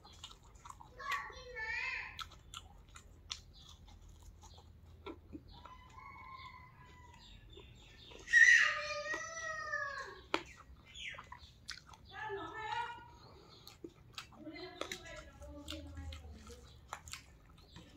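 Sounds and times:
chewing clicks: 0.0s - 8.3s, 8.9s - 17.9s
rooster crowing: 5.6s - 7.3s.

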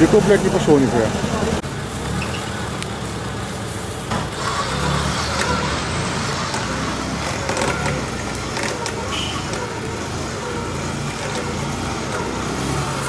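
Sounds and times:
off-road vehicle engine running: 0.0s - 13.0s.

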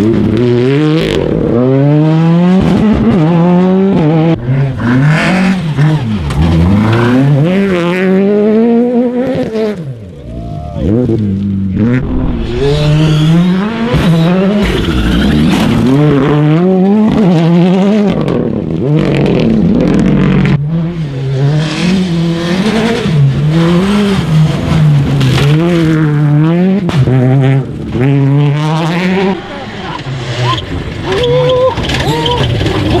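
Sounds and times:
rally car engines revving: 0.0s - 33.0s
tyre noise: 29.2s - 33.0s.

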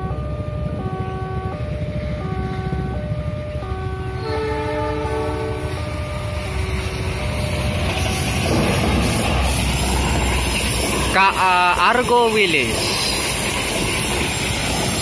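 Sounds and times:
diesel locomotive horn: 0.0s - 7.6s.

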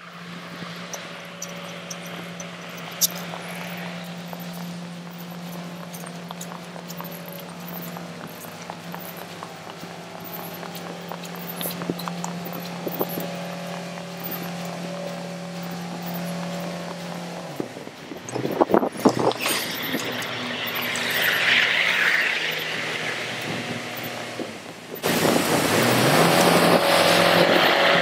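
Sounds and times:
engine humming: 0.0s - 28.0s.

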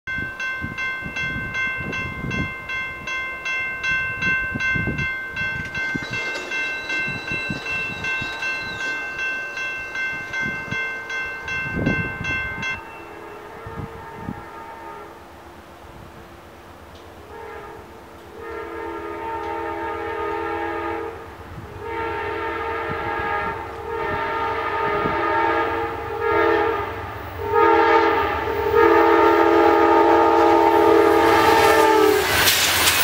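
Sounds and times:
crossing bell ringing: 0.1s - 13.8s
distant train horn: 12.6s - 15.4s, 17.2s - 32.6s.

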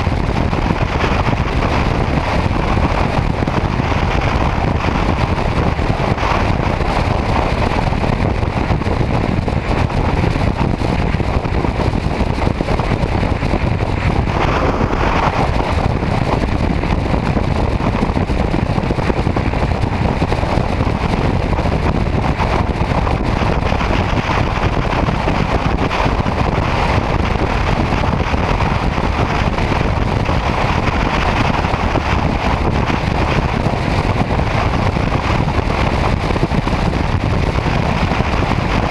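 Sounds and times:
motorcycle engine: 0.0s - 34.6s
wind rush on microphone: 0.0s - 38.9s.

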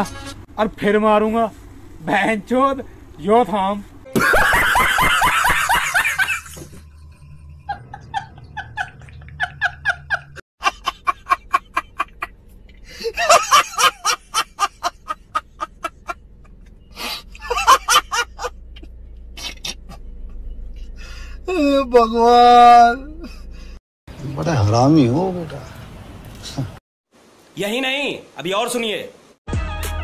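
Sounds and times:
men laughing hard: 4.1s - 18.8s.

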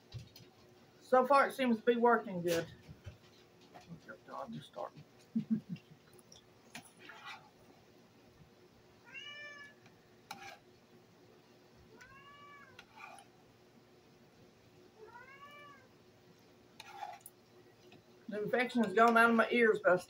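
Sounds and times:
cat meowing: 9.0s - 9.8s, 11.9s - 12.8s, 15.0s - 15.9s.

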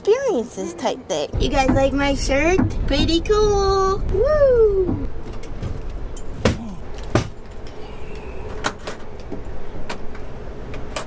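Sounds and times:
train car rumble and hum: 0.0s - 11.0s
sharp clicks and knocks: 1.4s - 2.9s.

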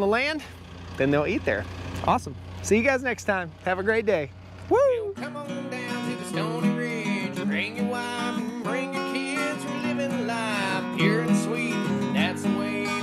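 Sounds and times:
song with strummed acoustic guitar: 2.6s - 13.0s.

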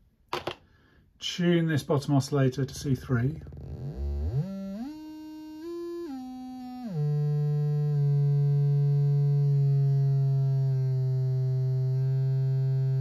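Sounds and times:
synthesizer oscillator tone: 3.5s - 13.0s.

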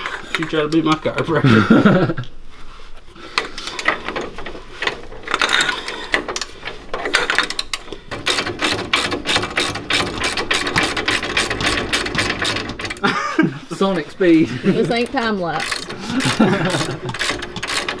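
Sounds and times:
socket ratchet clicking: 7.1s - 13.0s, 15.6s - 18.0s.

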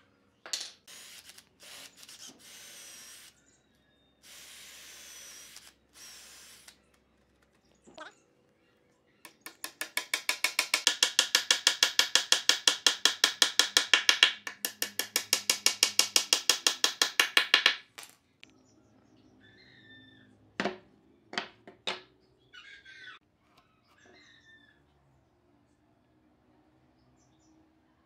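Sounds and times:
hammer tapping wooden dowel: 9.3s - 17.9s
boards knocking on workbench: 20.6s - 22.1s.

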